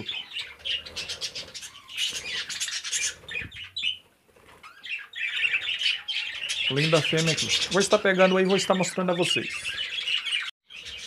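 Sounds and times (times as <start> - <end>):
budgerigars chattering and chirping: 0.0 - 4.0, 4.6 - 11.0
wings flapping: 0.6 - 4.8.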